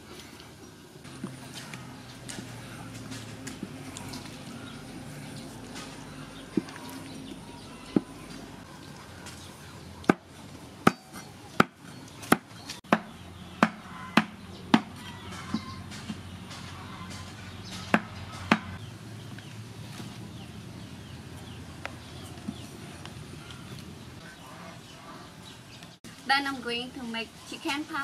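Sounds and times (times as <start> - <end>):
knife chopping on wooden board: 10.9 - 16.2, 17.8 - 18.8.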